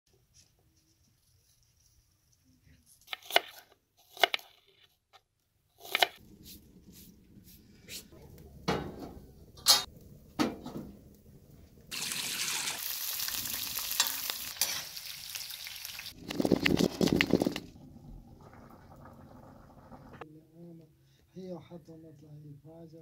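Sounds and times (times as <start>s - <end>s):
pots and dishes clinking: 13.9s - 14.9s.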